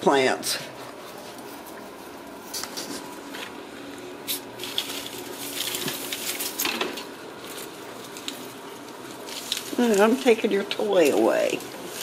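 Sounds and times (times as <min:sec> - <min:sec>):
faint steady hum: 0:00.0 - 0:12.0
plastic leaves rustling and crackling: 0:04.2 - 0:12.0.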